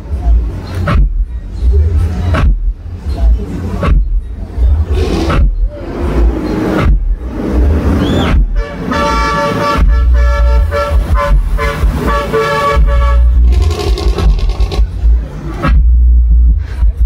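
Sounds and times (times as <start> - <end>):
heavy bass from speakers: 0.0 - 17.0
horn honking: 8.4 - 14.9.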